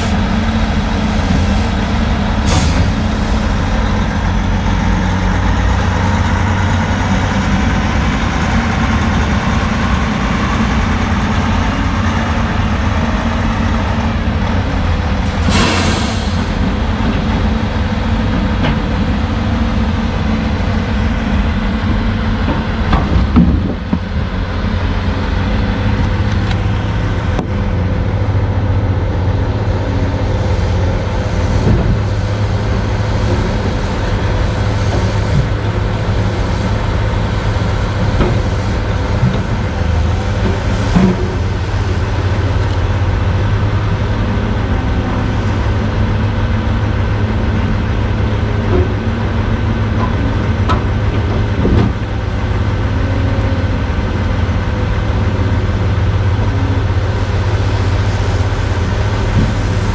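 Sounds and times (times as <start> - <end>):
heavy diesel engines running: 0.0 - 59.9
short air hiss: 15.4 - 16.5.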